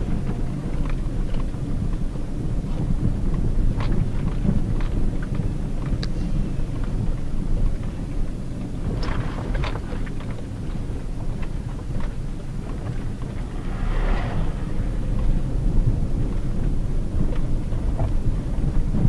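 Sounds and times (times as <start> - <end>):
gravel ticking against car: 0.0 - 19.0
tyres and engine rumble: 0.0 - 19.0.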